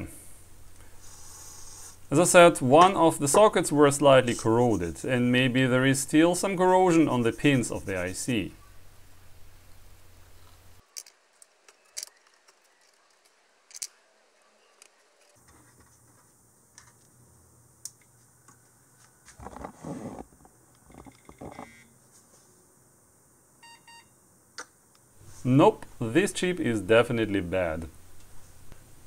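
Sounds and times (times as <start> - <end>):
small clicks and scrapes: 10.4 - 14.0, 14.6 - 17.1, 17.9 - 21.7.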